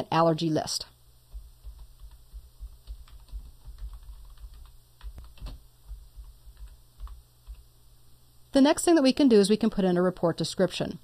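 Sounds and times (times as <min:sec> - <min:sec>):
keyboard typing: 0:01.3 - 0:07.7.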